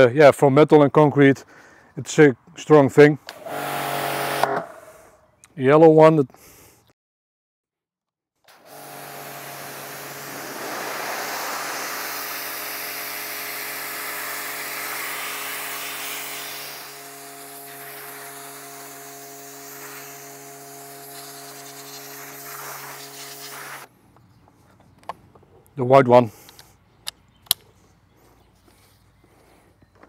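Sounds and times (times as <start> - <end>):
pressure washer pump hum: 3.3 - 4.9, 8.5 - 23.9
water jet hissing: 8.6 - 23.9.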